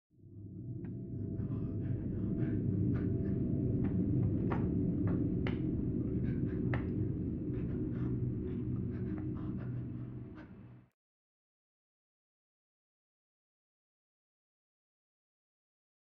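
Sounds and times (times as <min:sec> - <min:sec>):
low dark droning rumble: 0:00.2 - 0:10.9.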